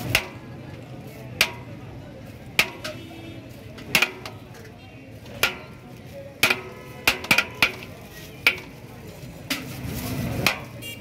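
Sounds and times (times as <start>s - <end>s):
metal ladle clinking on pot: 1.3s - 3.2s, 3.8s - 8.8s.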